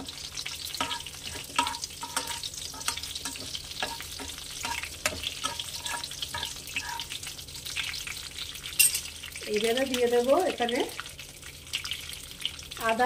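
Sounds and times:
spices sizzling in hot oil: 0.0s - 13.0s
metal spatula scraping a pan: 0.4s - 7.3s.

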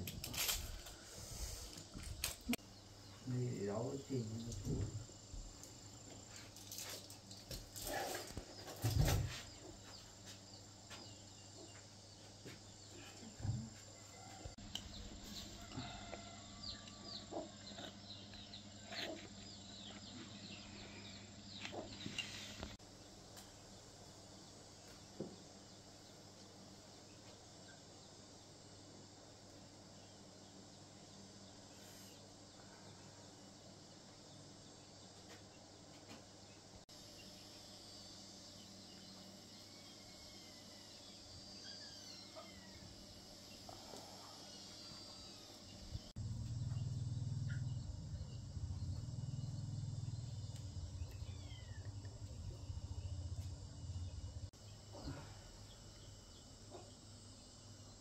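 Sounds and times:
insects buzzing: 0.0s - 58.0s
bird chirps: 46.2s - 54.3s.

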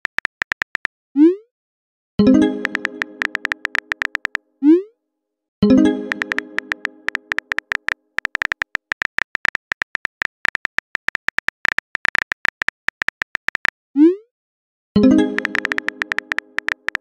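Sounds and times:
phone keyboard clicks: 0.0s - 0.9s, 2.6s - 4.4s, 6.1s - 13.7s, 15.3s - 17.0s.

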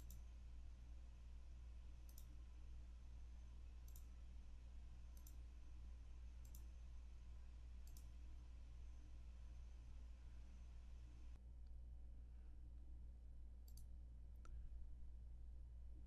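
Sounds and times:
computer mouse clicking: 0.0s - 0.2s, 2.0s - 2.4s, 3.8s - 4.1s, 5.1s - 5.4s, 6.4s - 6.7s, 7.8s - 8.2s, 13.6s - 13.9s
faint steady low hum: 0.0s - 16.0s.

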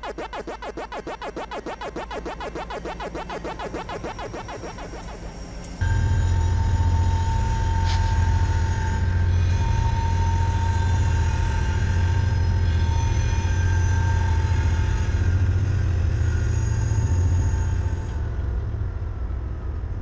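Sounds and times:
thin steady whine: 0.0s - 12.6s
diesel locomotive engine drone: 0.0s - 20.0s.

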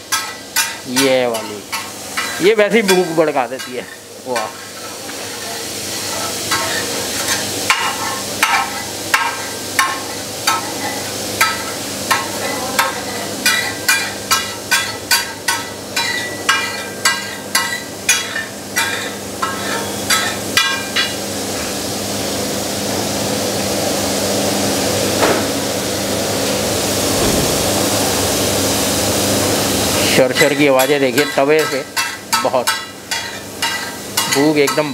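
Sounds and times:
ghee sizzling: 0.0s - 34.9s
metal spatula striking iron griddle: 0.1s - 5.0s, 6.0s - 21.2s, 30.4s - 34.9s.

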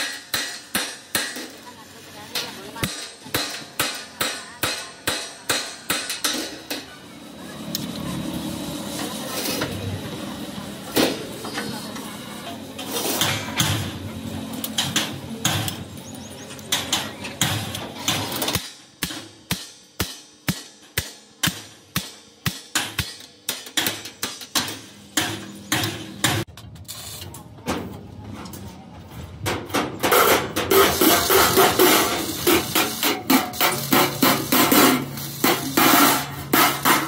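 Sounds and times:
hammer striking metal: 0.0s - 1.6s, 2.8s - 6.9s, 16.7s - 26.5s
workshop noise: 0.0s - 37.0s.

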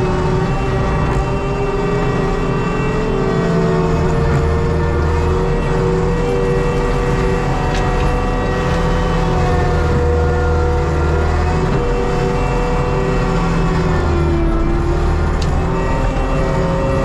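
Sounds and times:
diesel engine running under load: 0.0s - 17.0s.

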